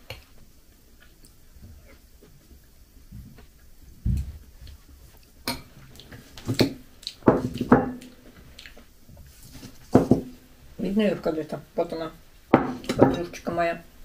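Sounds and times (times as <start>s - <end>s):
chewing: 4.7s - 6.4s, 7.0s - 8.9s.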